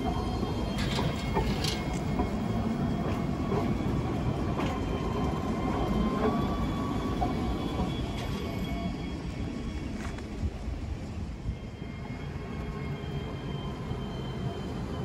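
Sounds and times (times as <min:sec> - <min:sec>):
tram clicks: 0:00.0 - 0:06.5
tram rumbling on rails: 0:00.0 - 0:15.0.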